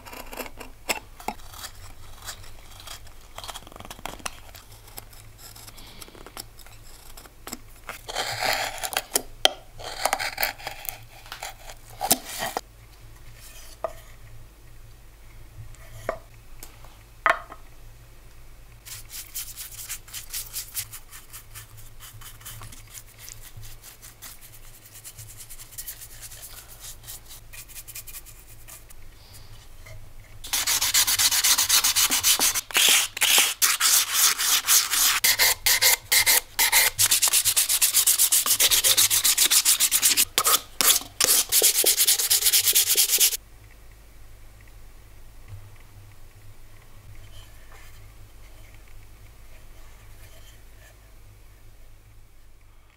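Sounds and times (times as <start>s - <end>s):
knife carving wood: 0.0s - 9.2s, 9.8s - 12.6s, 30.5s - 43.4s
brush hissing on wood: 30.4s - 43.4s
rapid rubbing strokes: 30.4s - 43.4s.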